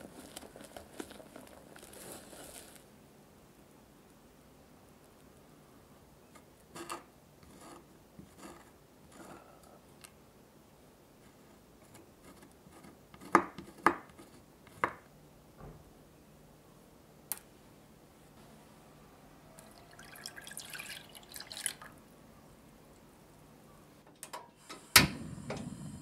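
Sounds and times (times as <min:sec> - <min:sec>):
knife scraping on wooden board: 0:06.7 - 0:09.4.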